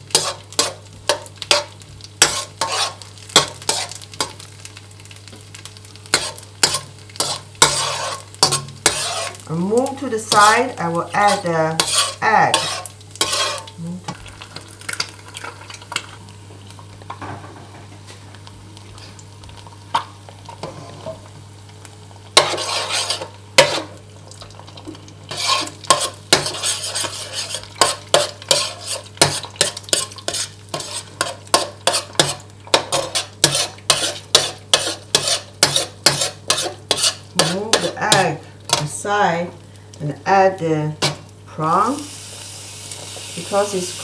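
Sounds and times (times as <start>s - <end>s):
eggs sizzling in oil: 0.0s - 44.0s
metal spatula scraping wok: 0.1s - 4.0s, 6.1s - 13.8s, 20.6s - 21.2s, 22.4s - 24.0s, 25.3s - 39.0s.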